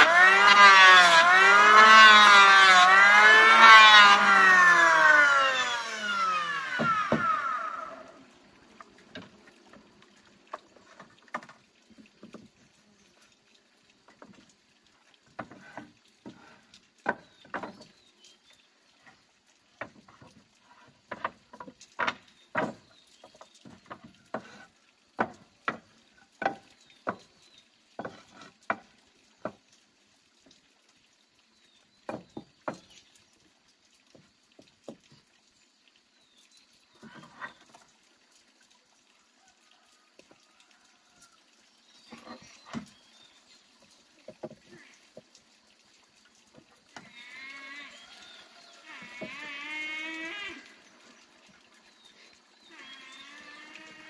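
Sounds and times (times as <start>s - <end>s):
wooden boards knocking and clattering: 6.6s - 7.6s, 17.0s - 17.9s, 21.1s - 24.6s, 25.2s - 27.3s.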